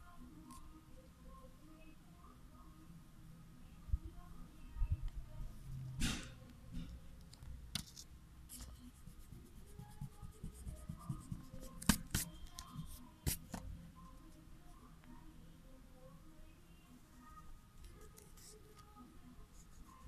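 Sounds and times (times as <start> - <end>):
eraser rubbing on paper: 8.5 - 13.5.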